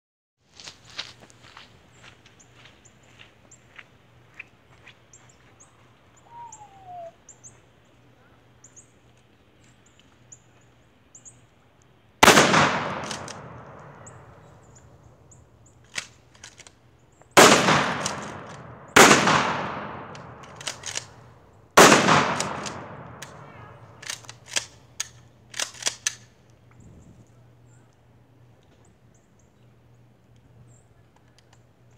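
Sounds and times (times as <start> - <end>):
shotgun blasts echoing: 12.2 - 14.6, 17.4 - 21.2, 21.8 - 24.2.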